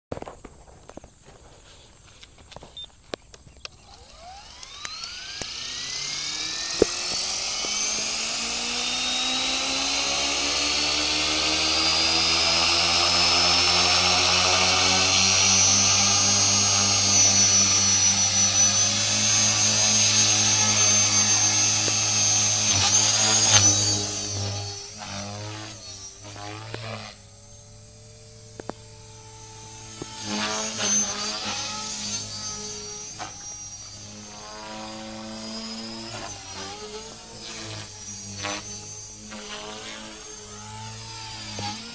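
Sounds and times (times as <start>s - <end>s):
electric motor whine: 0.2s - 41.9s
helicopter rotor hum: 0.6s - 41.9s.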